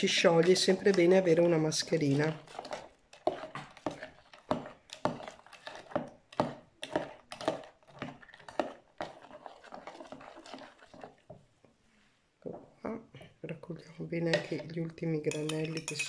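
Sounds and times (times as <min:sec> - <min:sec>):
metal spoon clinking ice in jug: 0:15.3 - 0:16.0.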